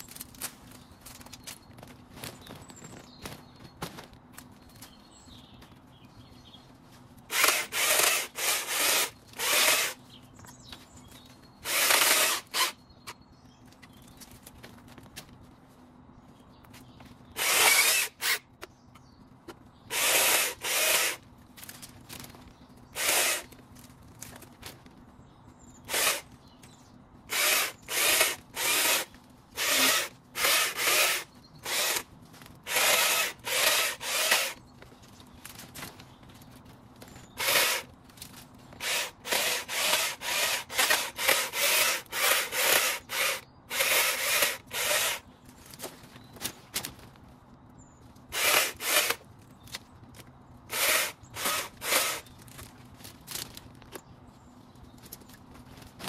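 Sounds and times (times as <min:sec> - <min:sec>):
garden tool rasping through wood: 0:07.3 - 0:10.0, 0:11.6 - 0:12.8, 0:17.4 - 0:18.4, 0:19.9 - 0:21.2, 0:23.0 - 0:23.6, 0:25.8 - 0:26.3, 0:27.3 - 0:34.6, 0:37.3 - 0:37.9, 0:38.8 - 0:45.3, 0:48.3 - 0:49.2, 0:50.7 - 0:52.4.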